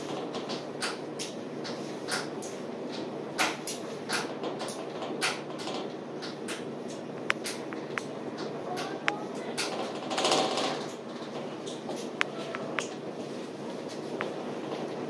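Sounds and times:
knocks and rattles: 9.6s - 12.0s.

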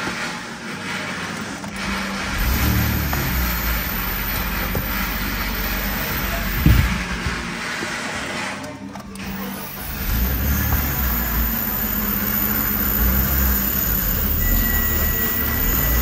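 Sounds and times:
car engine starting and rumbling: 0.0s - 16.0s.

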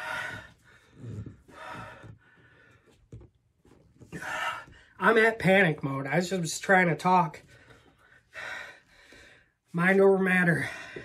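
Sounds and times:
man breathing hard: 0.0s - 3.0s, 7.4s - 9.7s, 10.6s - 11.0s.

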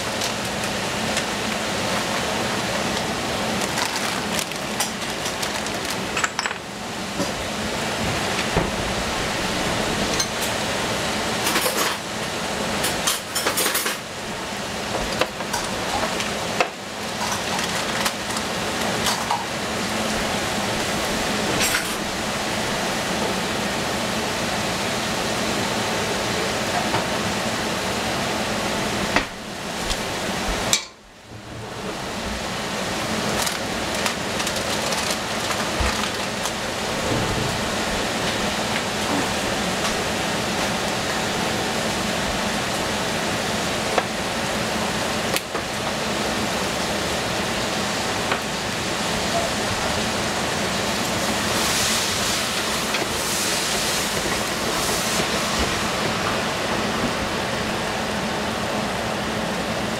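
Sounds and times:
vegetables sizzling in a pan: 50.6s - 56.6s.

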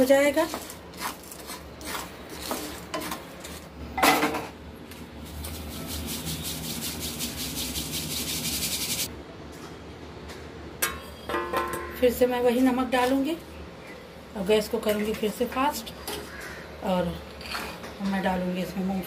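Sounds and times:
spatula scraping in a pan: 0.1s - 3.7s, 5.2s - 9.1s.

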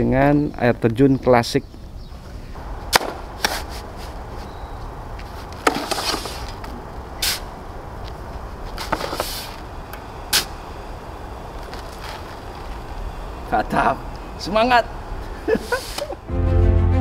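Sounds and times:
shovel scraping sand: 2.9s - 4.5s, 5.3s - 6.6s, 7.2s - 7.5s, 8.8s - 9.6s, 10.3s - 10.6s, 15.5s - 16.2s
sand tipping into plastic bucket: 5.6s - 6.6s.

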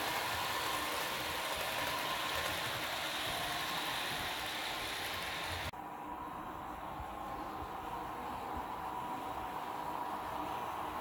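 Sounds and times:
model train rolling on track: 0.0s - 5.7s.

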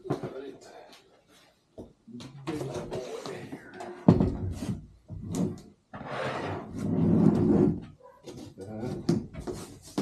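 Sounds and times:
metal base scraping across table: 5.9s - 7.9s.

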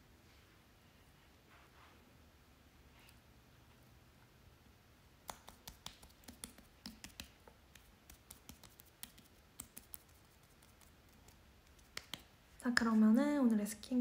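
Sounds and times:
hands patting moist skin: 5.2s - 13.0s.

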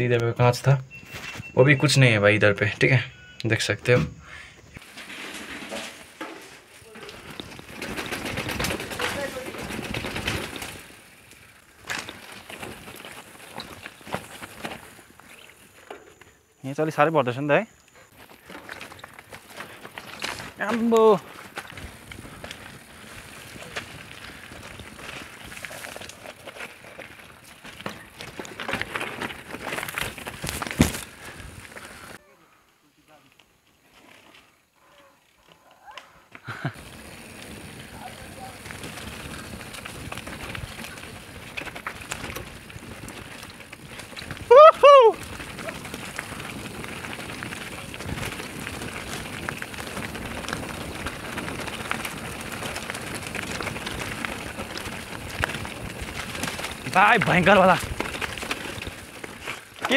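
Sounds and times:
bike rattling: 0.0s - 32.2s, 36.4s - 59.9s
tyres knocking over stones: 4.8s - 16.1s, 18.1s - 32.1s, 38.5s - 59.9s.

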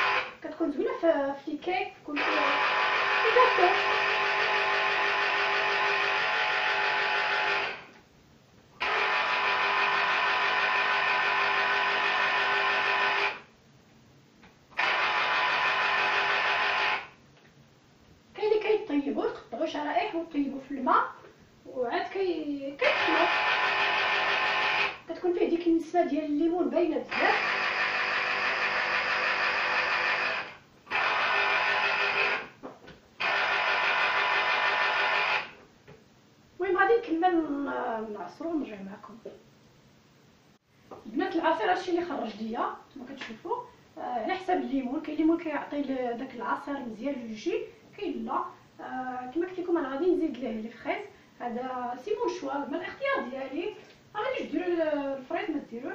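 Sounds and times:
electric juicer motor whirring: 0.0s - 0.3s, 2.2s - 7.9s, 8.8s - 13.4s, 14.8s - 17.1s, 22.8s - 25.0s, 27.1s - 32.5s, 33.2s - 35.5s.

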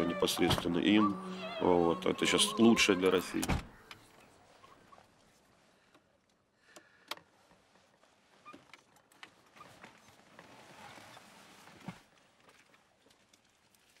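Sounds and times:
clothing rustle: 7.3s - 14.0s.

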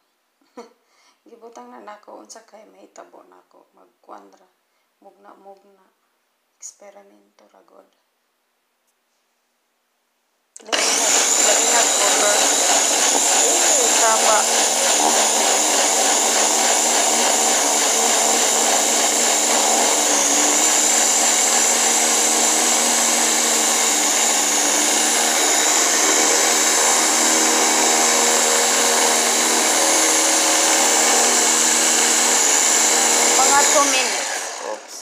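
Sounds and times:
electric blender chopping vegetables: 10.6s - 35.0s.

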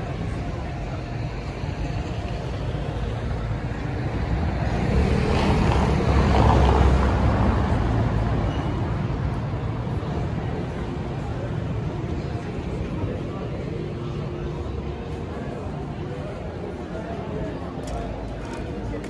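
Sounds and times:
vehicle passing with tyre noise: 2.8s - 10.8s.

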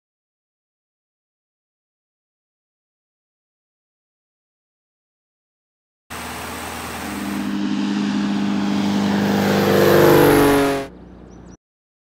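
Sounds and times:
engine droning past: 6.1s - 11.6s.

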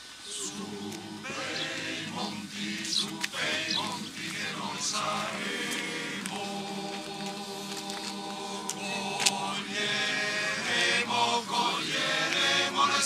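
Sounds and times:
men's choir singing a cappella: 0.2s - 13.0s.

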